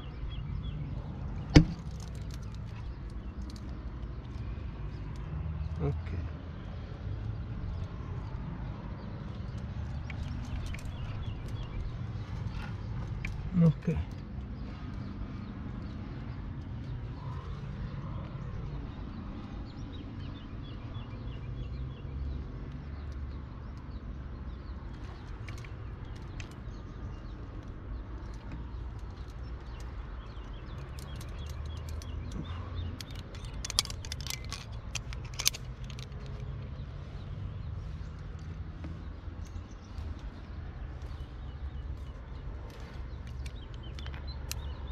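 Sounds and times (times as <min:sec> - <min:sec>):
climbing gear clicking on rock: 0:23.1 - 0:36.8.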